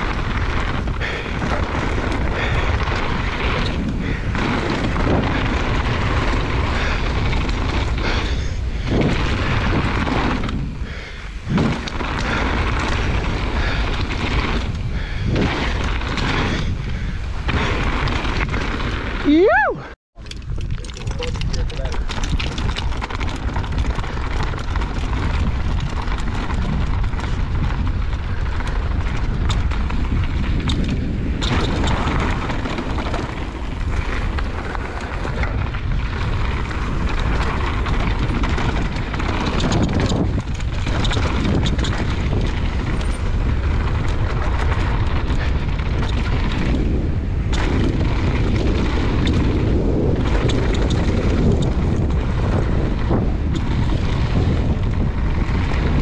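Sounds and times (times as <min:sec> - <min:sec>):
bike knocks and rattles: 0:00.0 - 0:19.5, 0:20.2 - 0:56.0
tyres rumbling on dirt: 0:00.0 - 0:56.0
wind buffeting microphone: 0:00.0 - 0:56.0.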